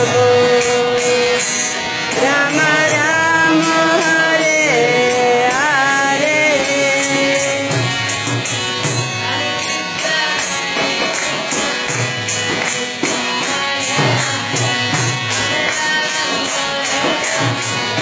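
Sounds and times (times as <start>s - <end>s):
harmonium sustained chords: 0.0s - 18.0s
barrel drum beating rhythm: 7.2s - 9.5s.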